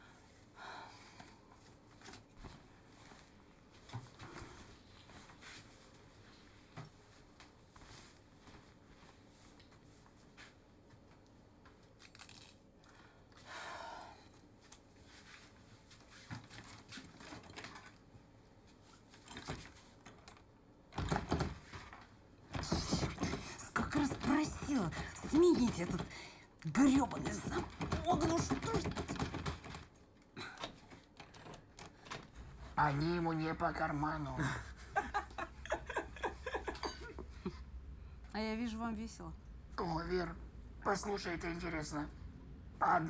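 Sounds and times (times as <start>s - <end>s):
rustling of clothing and hair: 1.2s - 12.5s, 14.2s - 20.6s.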